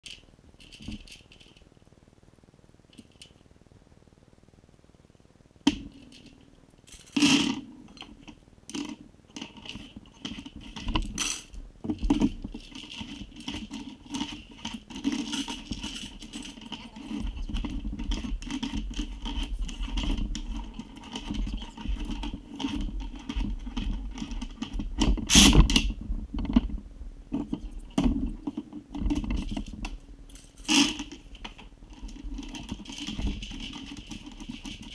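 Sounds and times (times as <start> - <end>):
scraping and sharp knocks: 5.7 - 34.9
cartridges clinking and rattling: 6.1 - 18.7.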